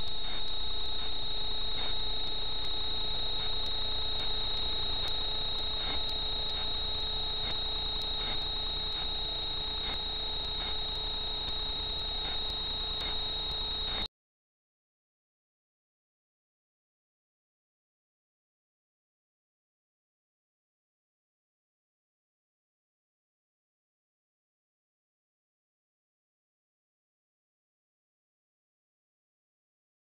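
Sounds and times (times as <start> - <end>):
faint steady tones: 0.0 - 14.1
faint ticks: 0.0 - 14.1
high-pitched electronic whine: 0.0 - 14.1
low hum: 0.0 - 14.1.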